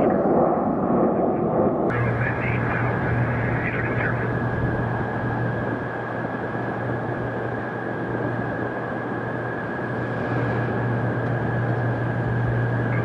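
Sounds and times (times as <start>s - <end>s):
low hum: 0.0s - 13.0s
radio hiss: 1.9s - 6.2s, 12.8s - 13.0s.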